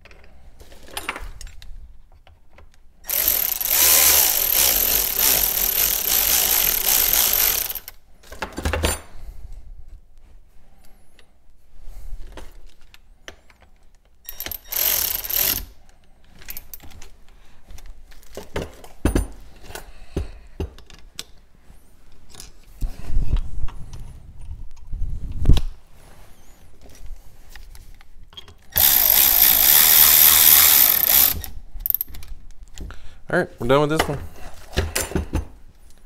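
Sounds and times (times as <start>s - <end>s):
cordless power driver running: 3.1s - 7.9s, 28.8s - 31.5s.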